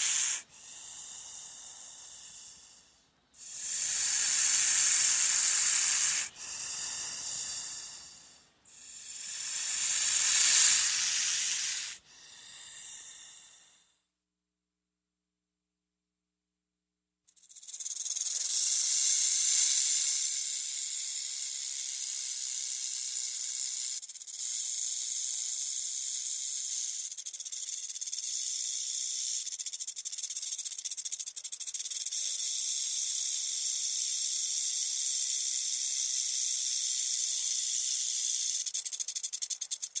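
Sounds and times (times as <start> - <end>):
snake hissing: 0.0 - 14.0, 17.4 - 40.0.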